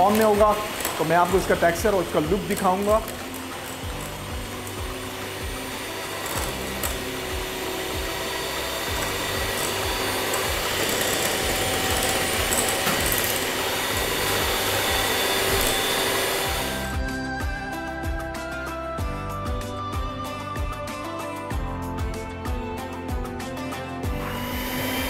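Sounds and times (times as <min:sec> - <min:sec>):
electric hand mixer running: 0:00.0 - 0:17.2, 0:24.0 - 0:25.0
soft background music: 0:00.0 - 0:25.0.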